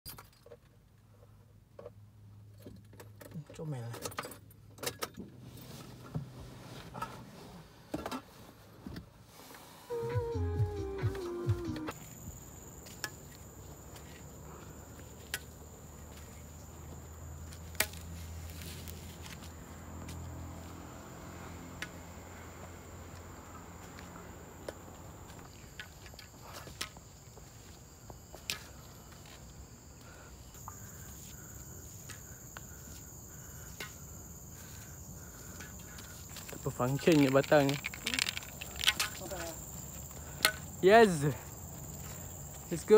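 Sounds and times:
insects buzzing: 9.4 - 42.9
footsteps on dirt trail: 11.0 - 20.9, 22.0 - 42.9.

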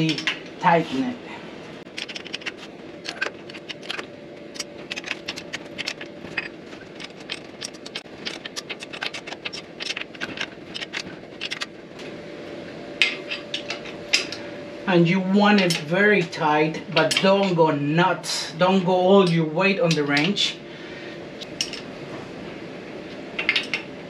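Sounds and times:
faint steady hum: 0.0 - 24.0
metal tool rattling against bolts: 1.9 - 11.8, 21.4 - 21.9.

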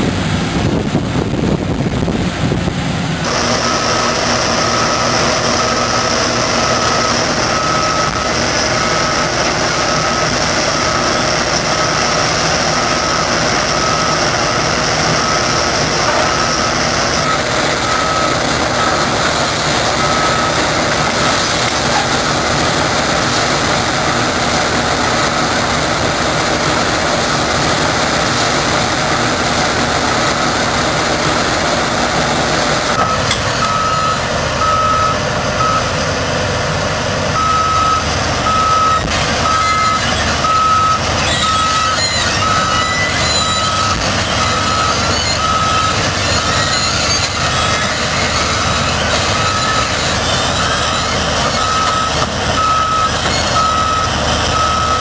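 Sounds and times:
diesel engine running: 0.0 - 55.0
travel alarm beeping: 3.6 - 19.1, 19.9 - 21.3, 32.9 - 35.9, 37.4 - 55.0.

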